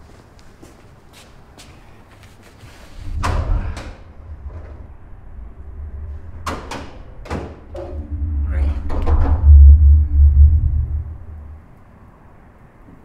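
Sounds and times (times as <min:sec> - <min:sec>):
deep low rumble: 0:02.9 - 0:11.8.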